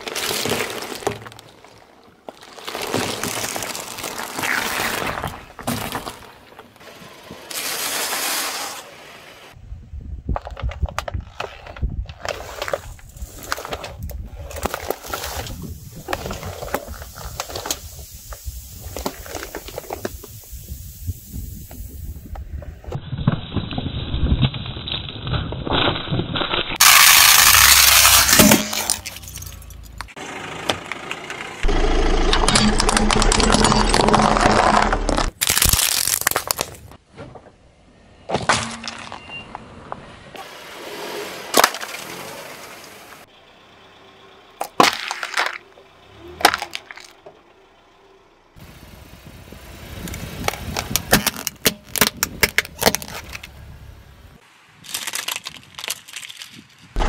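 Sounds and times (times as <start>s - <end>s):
tyre crushing plastic and cans: 0.0s - 8.7s, 10.3s - 18.0s, 25.6s - 30.2s, 32.3s - 37.0s, 44.6s - 45.7s, 46.3s - 47.3s, 50.4s - 53.6s, 54.8s - 57.0s.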